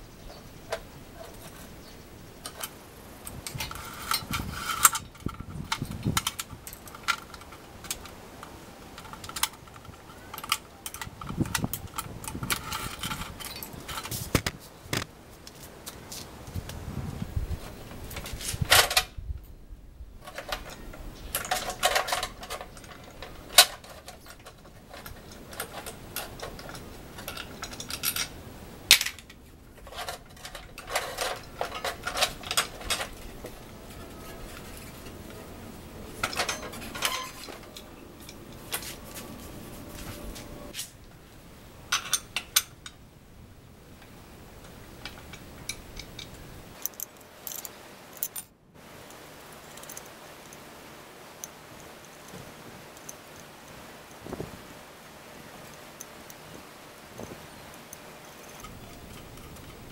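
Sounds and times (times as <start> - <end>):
small metal parts clinking: 2.4 - 14.3, 20.2 - 39.2, 41.9 - 42.9, 45.0 - 48.6, 49.4 - 50.6, 57.2 - 59.9.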